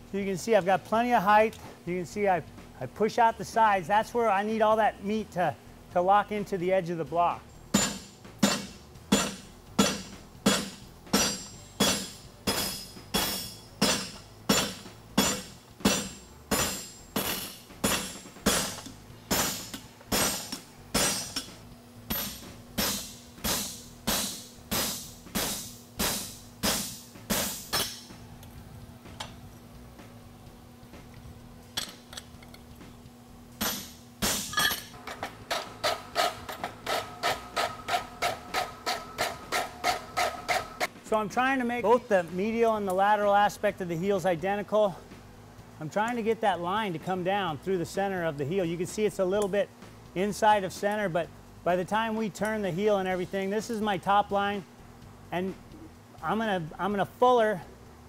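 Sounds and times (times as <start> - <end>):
hammer ringing on anvil: 7.8 - 19.6.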